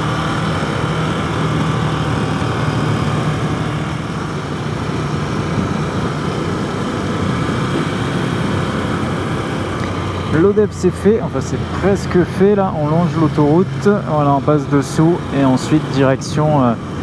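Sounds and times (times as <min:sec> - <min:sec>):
motorcycle engine cruising: 0:00.0 - 0:17.0
road noise: 0:00.0 - 0:17.0
rushing wind: 0:00.0 - 0:17.0.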